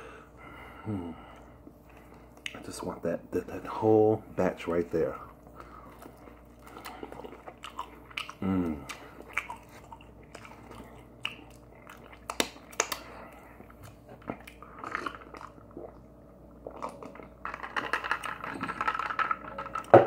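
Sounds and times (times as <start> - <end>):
person chewing crispy food: 5.5 - 19.4
voiced hum falling in pitch: 8.4 - 8.9.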